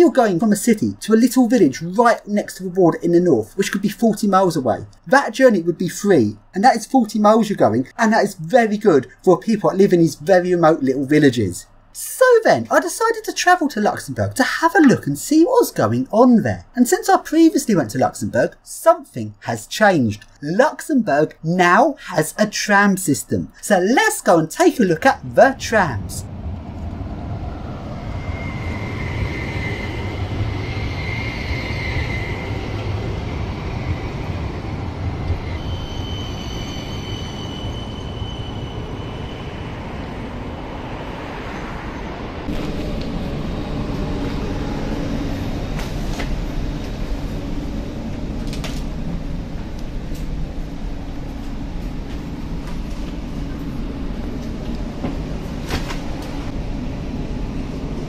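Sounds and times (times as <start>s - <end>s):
tram rolling noise: 0.0s - 58.0s
steady hum: 42.4s - 58.0s
electric drive whine: 42.5s - 57.6s.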